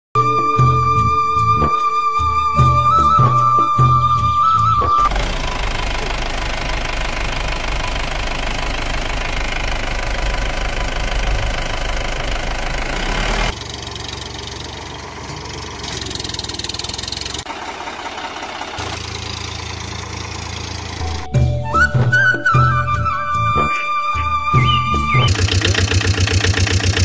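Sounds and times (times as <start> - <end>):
engine running with knocking: 5.0 - 21.3, 25.2 - 27.0.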